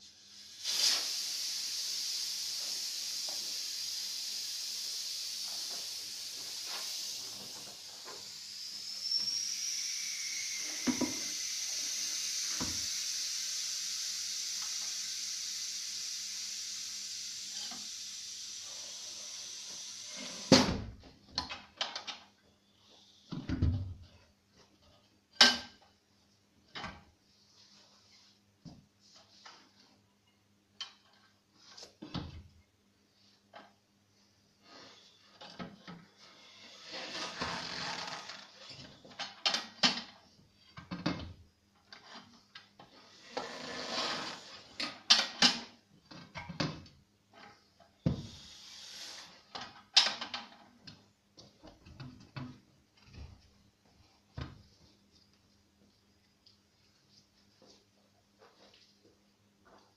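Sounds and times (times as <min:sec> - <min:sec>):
bar scraping along rim: 0:36.7 - 0:38.4, 0:43.3 - 0:44.5.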